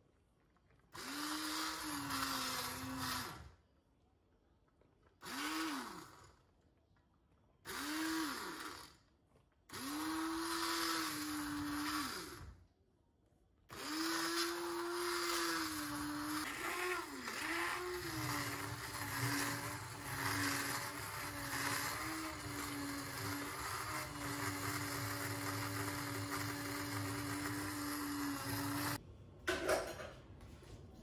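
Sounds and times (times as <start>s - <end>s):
stick blender pureeing tomatoes: 0.7s - 3.6s, 5.1s - 6.4s, 7.6s - 12.6s, 13.7s - 29.0s.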